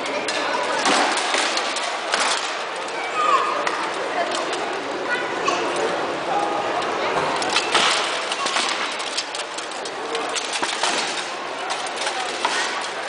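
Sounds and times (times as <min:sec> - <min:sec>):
crowd murmur in a large hall: 0:00.0 - 0:13.0
swords clanking on shields and armour: 0:10.3 - 0:13.0.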